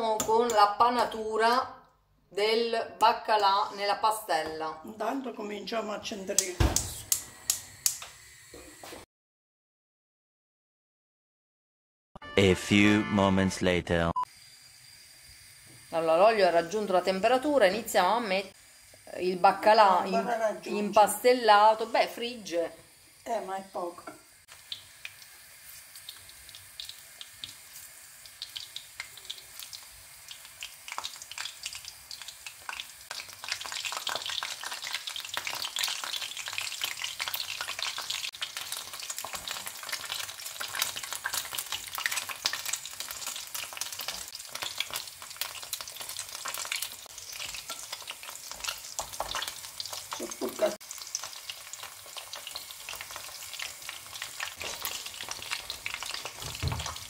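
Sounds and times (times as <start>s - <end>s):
fish frying in hot oil: 14.3s - 57.0s.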